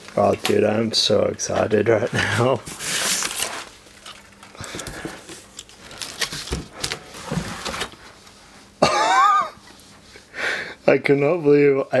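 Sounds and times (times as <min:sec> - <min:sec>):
cardboard flaps rustling: 0:02.5 - 0:08.1.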